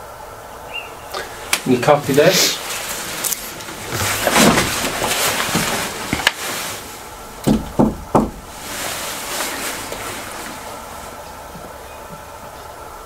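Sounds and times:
rustling noise: 1.2 - 12.6
dull knocks: 7.4 - 8.7.

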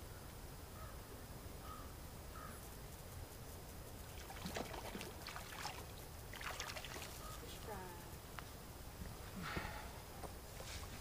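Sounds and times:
quiet steady hiss: 0.0 - 11.0
water trickling and splashing: 3.9 - 8.0.

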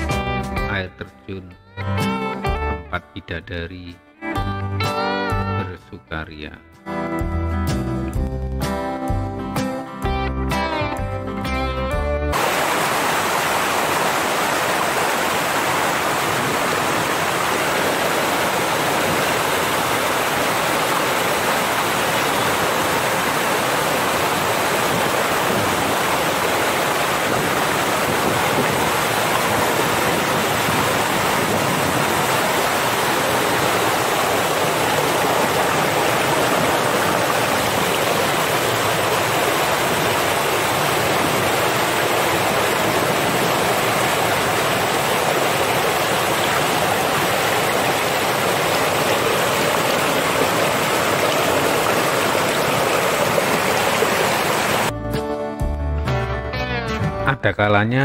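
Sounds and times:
waterfall rushing: 12.3 - 54.9.

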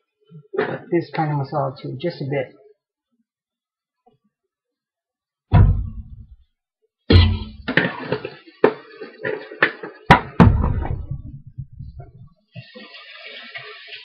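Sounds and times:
heavy thump: 5.5 - 6.4, 7.1 - 7.8, 10.1 - 12.3
cookware knocking and clanking: 7.1 - 8.3.

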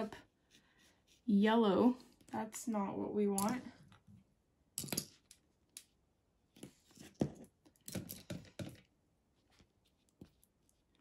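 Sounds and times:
brush stroking on paper: 0.4 - 1.6.

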